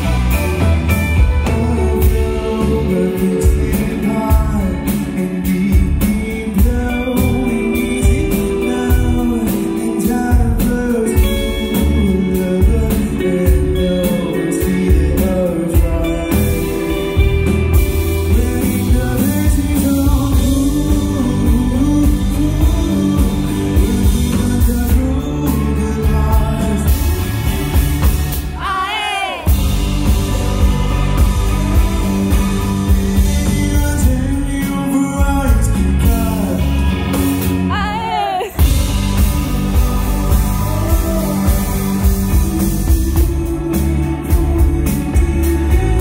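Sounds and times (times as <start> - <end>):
person singing lead vocal: 0.0 - 27.8, 28.4 - 46.0
rock band playing live: 0.0 - 46.0.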